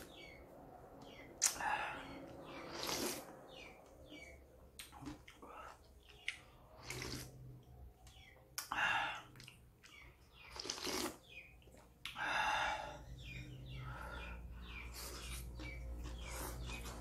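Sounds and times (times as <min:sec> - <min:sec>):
person slurping noodles: 0:02.6 - 0:03.3, 0:06.8 - 0:07.4, 0:10.6 - 0:11.2.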